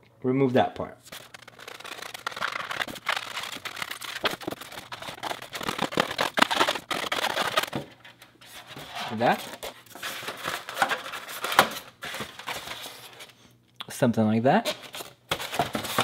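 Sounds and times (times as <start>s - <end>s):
knife scraping styrofoam: 1.1s - 7.8s.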